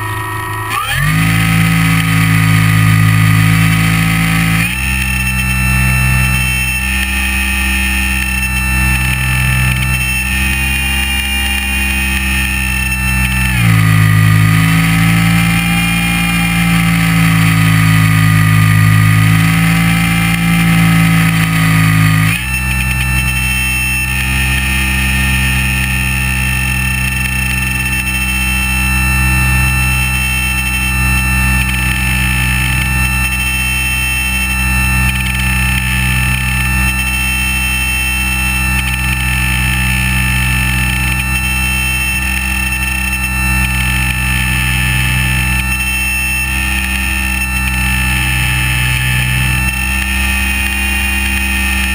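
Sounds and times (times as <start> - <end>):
electric motor and propeller whine: 0.0 - 51.9.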